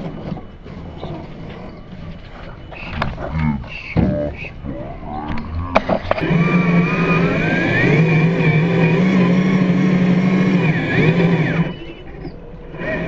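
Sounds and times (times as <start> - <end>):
toy truck motor whining: 4.6 - 13.0.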